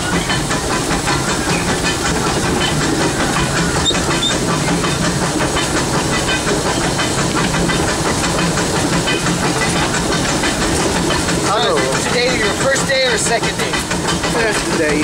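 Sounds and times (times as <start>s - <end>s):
rhythmic engine clatter: 0.0s - 15.0s
steam hissing: 0.0s - 15.0s.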